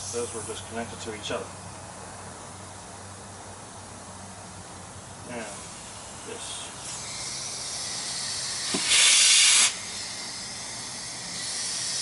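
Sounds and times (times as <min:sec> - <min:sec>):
compressed air hissing from hose: 0:05.4 - 0:12.0
loud blast of air: 0:06.8 - 0:12.0.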